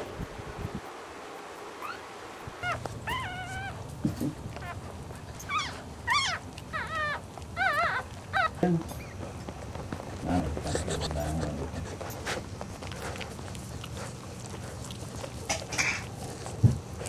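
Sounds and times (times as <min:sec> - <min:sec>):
puppy squealing: 0:01.8 - 0:03.9, 0:04.5 - 0:08.6.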